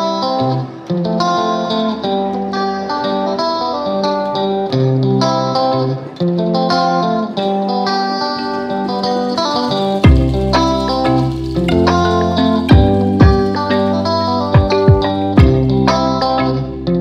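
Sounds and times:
instrumental music with bass: 0.0s - 17.0s.

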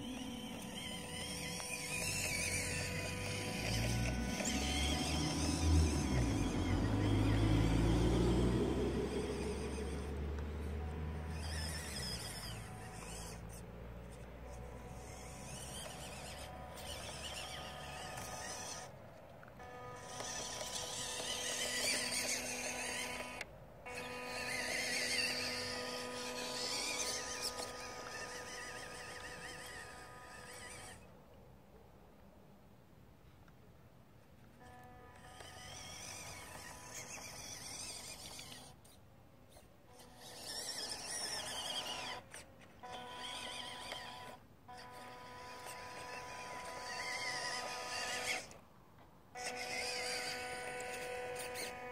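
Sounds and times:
toy truck motor whining: 0.0s - 31.2s, 34.5s - 48.6s, 49.3s - 51.9s.

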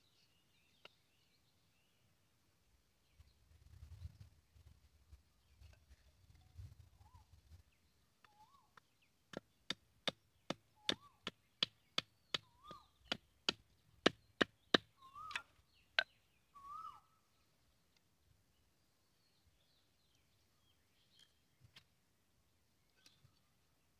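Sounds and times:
machete chopping bamboo on wood: 9.3s - 15.4s.

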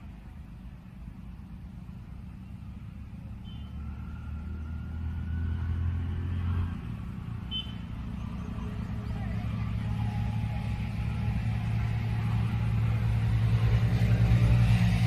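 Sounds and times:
low motor rumble: 6.9s - 15.0s.

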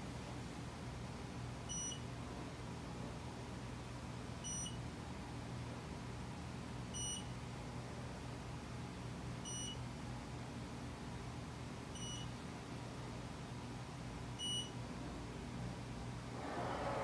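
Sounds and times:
steady low hum: 0.0s - 17.0s
short high-pitched beeps: 4.5s - 4.8s, 7.0s - 7.2s, 9.5s - 9.8s, 12.0s - 12.3s.

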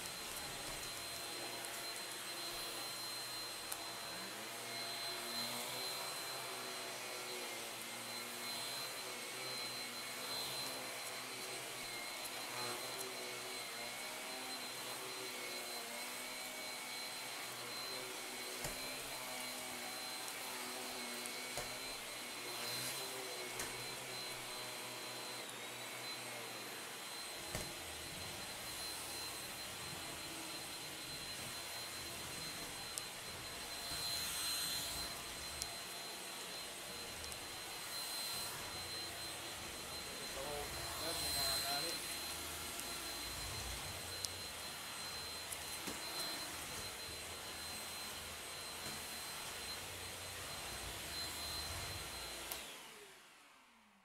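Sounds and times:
stick vacuum running with motor whine: 0.0s - 53.9s.

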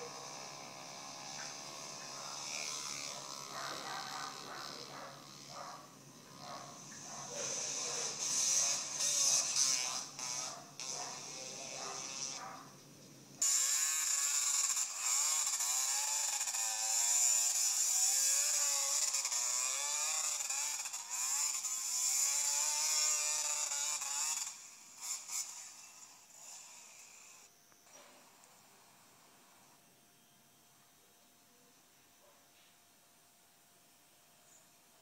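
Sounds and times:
dirt bike engine revving: 0.0s - 12.6s, 13.4s - 27.4s.

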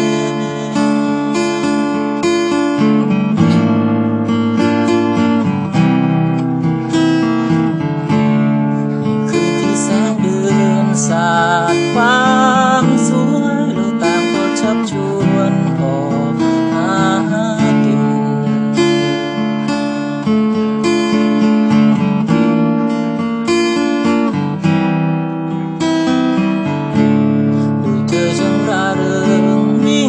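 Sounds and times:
man singing: 0.0s - 2.0s, 9.2s - 19.1s, 27.8s - 30.0s
acoustic guitar strumming: 0.0s - 30.0s.

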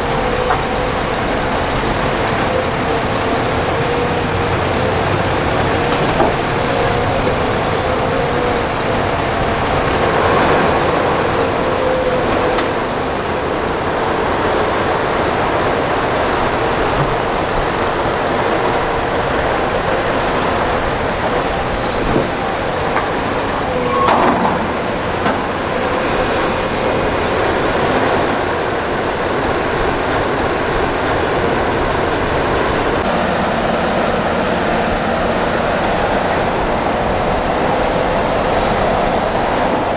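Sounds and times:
whining tone: 0.0s - 28.3s
excavator diesel engine running: 0.0s - 39.9s.

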